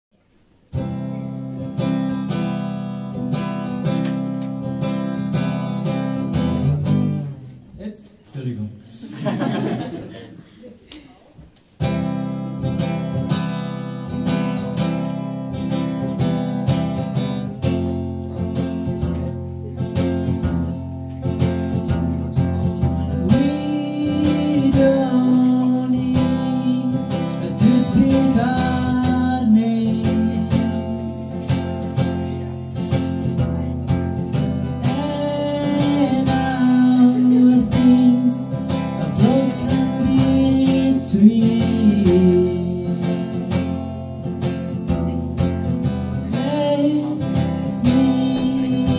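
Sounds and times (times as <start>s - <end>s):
acoustic guitar strumming: 0.7s - 7.6s, 11.8s - 48.9s
person singing: 21.9s - 48.9s.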